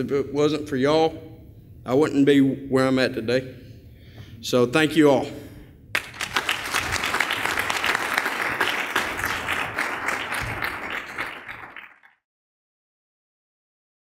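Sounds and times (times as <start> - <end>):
audience applauding: 6.0 - 12.2.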